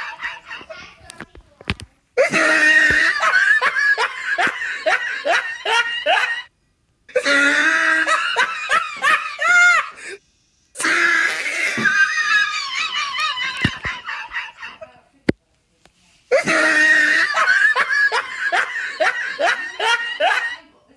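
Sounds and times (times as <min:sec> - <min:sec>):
person laughing hard: 0:02.2 - 0:06.5, 0:07.2 - 0:10.2, 0:10.9 - 0:14.8, 0:16.3 - 0:20.7.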